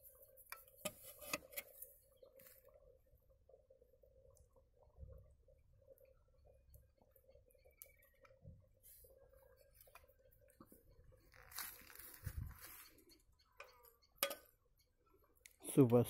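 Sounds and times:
rustle: 11.2 - 13.0.

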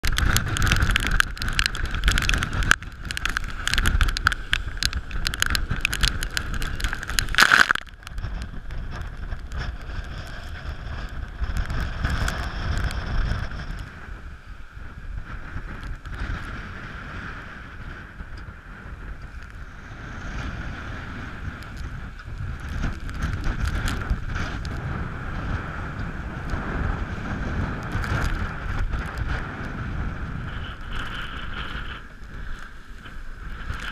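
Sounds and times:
water rushing past hull: 0.0 - 18.2
wind buffeting microphone: 0.0 - 33.9.

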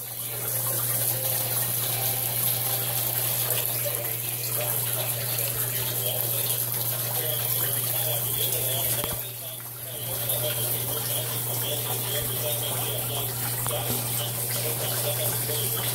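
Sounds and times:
water splashing and gurgling: 0.0 - 15.9.

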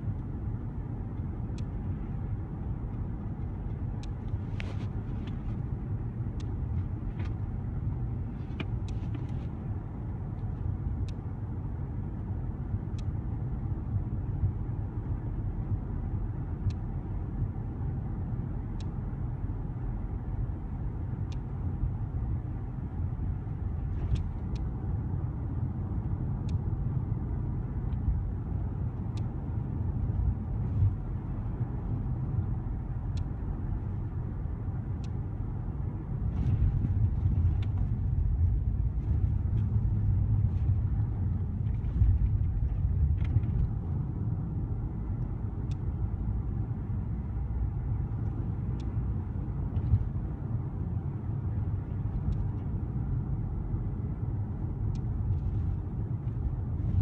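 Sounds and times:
car engine and road rumble: 0.0 - 57.0
light ticks: 1.1 - 2.0, 2.8 - 5.6, 6.3 - 7.4, 8.4 - 9.5, 10.3 - 11.3, 12.9 - 13.2, 16.6 - 16.9, 18.7 - 19.0, 21.2 - 21.5, 23.9 - 24.8, 26.0 - 26.7, 28.9 - 29.4, 30.0 - 34.0, 34.8 - 35.2, 45.0 - 46.5, 48.0 - 50.2, 51.9 - 52.8, 54.8 - 57.0.

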